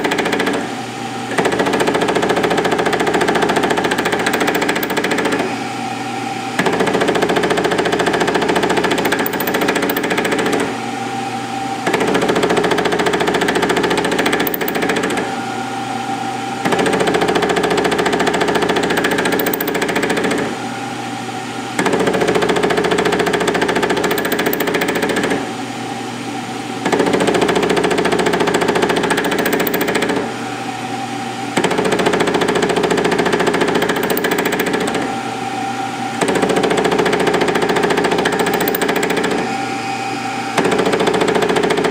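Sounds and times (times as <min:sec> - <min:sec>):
milling machine cutting steel: 0:00.0 - 0:25.5
spindle humming: 0:04.9 - 0:22.3, 0:33.7 - 0:40.9.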